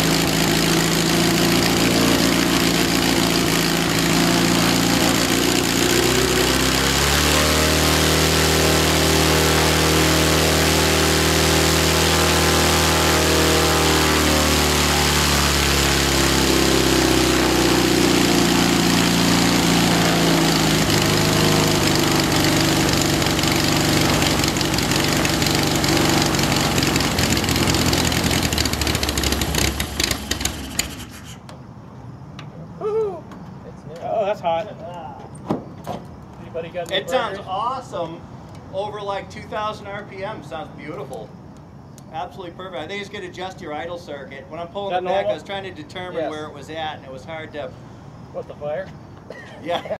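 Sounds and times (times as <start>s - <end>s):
aircraft engine running: 0.0s - 31.2s.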